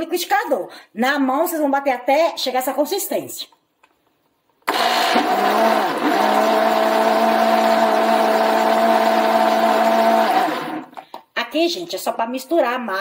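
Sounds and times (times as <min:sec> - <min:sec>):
blender motor running: 0:04.7 - 0:11.0.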